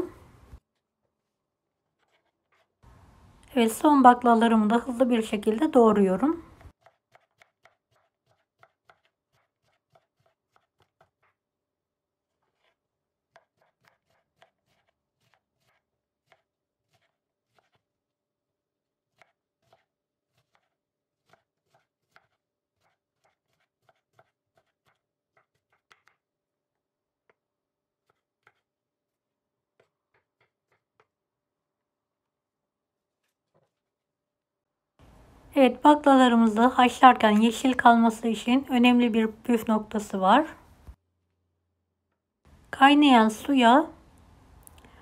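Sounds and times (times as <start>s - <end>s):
knife chopping on wooden board: 6.6s - 11.2s, 19.1s - 26.2s.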